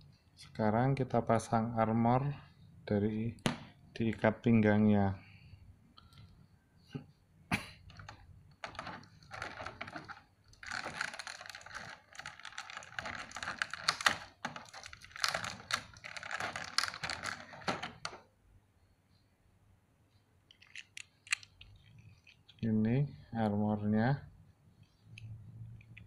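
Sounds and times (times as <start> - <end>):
plastic parts clicking and rattling: 7.9 - 18.2, 20.5 - 22.6.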